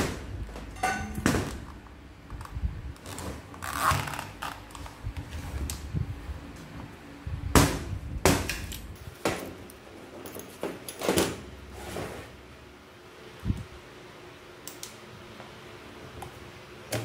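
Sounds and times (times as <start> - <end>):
metal knocks and clinks: 0.7 - 1.5.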